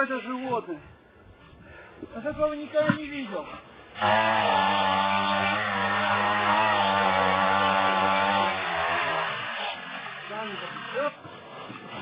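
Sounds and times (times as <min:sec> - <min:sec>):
small power tool engine running: 0:04.0 - 0:11.1.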